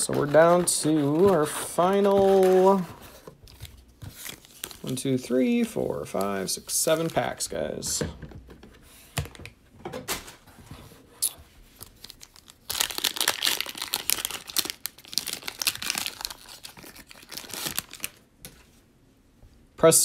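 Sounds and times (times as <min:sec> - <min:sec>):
foil wrapper rustling: 0:11.8 - 0:18.2
foil wrapper tearing and crinkling: 0:11.9 - 0:18.2.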